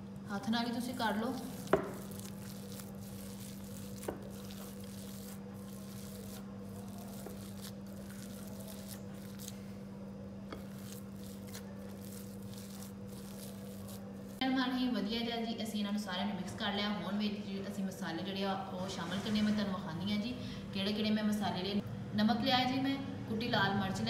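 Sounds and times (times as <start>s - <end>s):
steady low hum: 0.0s - 24.0s
hand squishing mashed potato: 1.0s - 9.9s, 10.5s - 14.4s.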